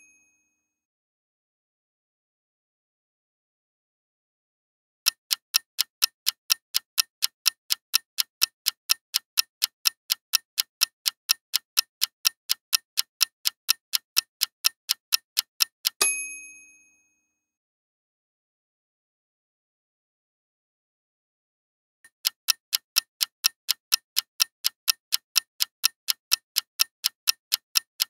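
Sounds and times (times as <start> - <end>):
bell ding: 0.0 - 0.4, 16.0 - 17.2
clock ticking: 5.1 - 16.0, 22.1 - 28.0.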